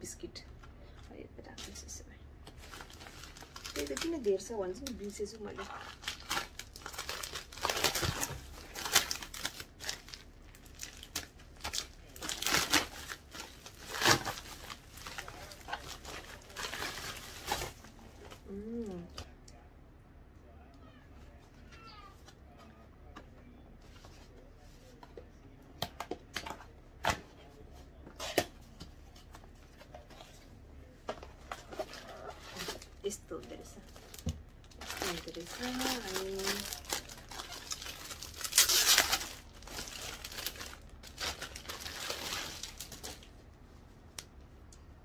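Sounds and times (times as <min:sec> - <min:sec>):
packaging crinkling and rustling: 0:02.4 - 0:18.6, 0:28.2 - 0:43.4.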